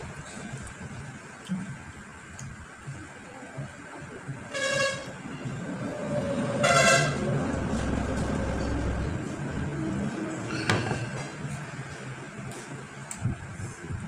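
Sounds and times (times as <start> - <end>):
horn honking: 4.5 - 5.5, 6.4 - 8.0.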